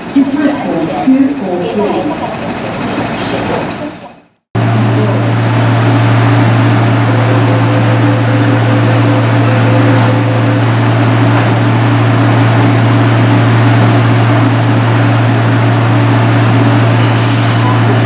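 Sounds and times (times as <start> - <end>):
train doors closing: 0.0 - 4.2, 5.0 - 15.3, 16.0 - 18.0
train equipment low hum: 0.0 - 18.0
high tone in hum: 4.6 - 18.0.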